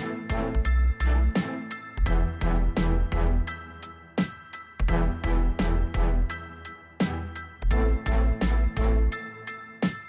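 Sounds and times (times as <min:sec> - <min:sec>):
deep bass: 0:02.0 - 0:03.5, 0:04.9 - 0:06.4, 0:07.7 - 0:09.1.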